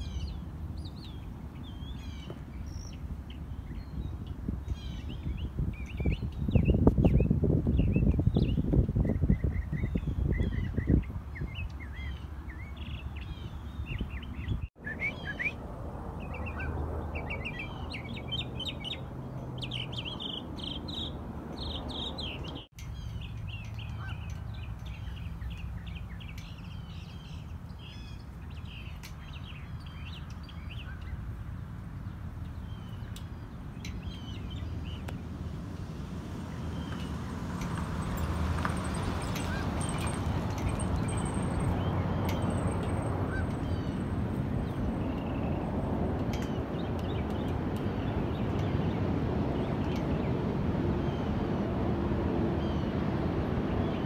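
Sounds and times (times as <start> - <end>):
mockingbird singing: 4.7 - 15.6.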